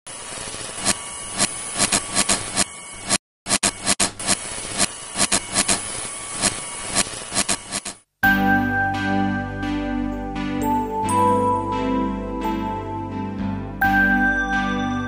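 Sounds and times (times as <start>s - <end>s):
electrical buzz and crackle: 0.1s - 8.1s.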